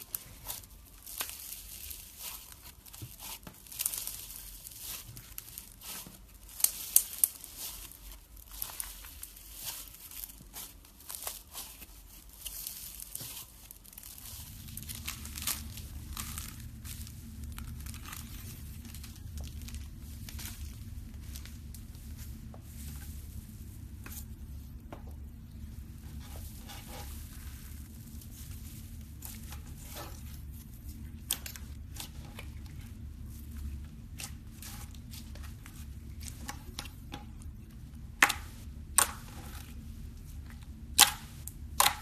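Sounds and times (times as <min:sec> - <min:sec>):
slime crackling and tearing: 0:00.0 - 0:22.2
slime crinkling: 0:00.0 - 0:42.0
steady low hum: 0:00.0 - 0:42.0.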